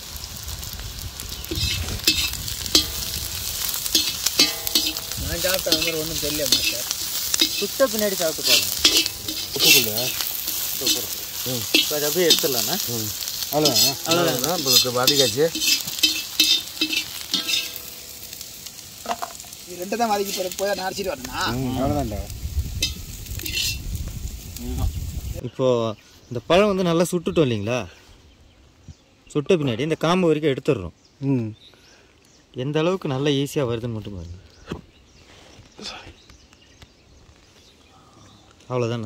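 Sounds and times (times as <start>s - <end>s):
shallots sizzling in oil: 0.0s - 25.4s
metal ladle scraping wok: 1.5s - 21.0s, 22.8s - 23.8s.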